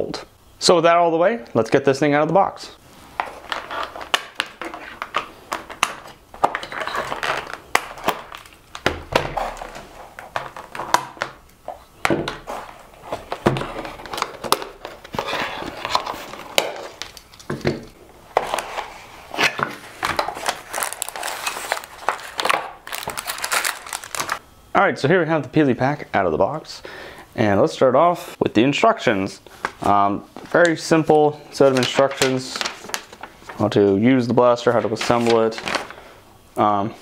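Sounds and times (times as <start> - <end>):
cardboard box rustling: 6.4 - 11.0, 11.7 - 17.0, 19.8 - 24.4.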